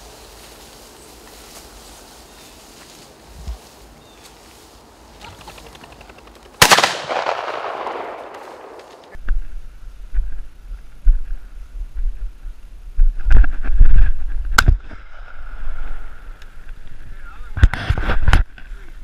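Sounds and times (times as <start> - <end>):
shotgun shots echoing: 6.6 - 9.1.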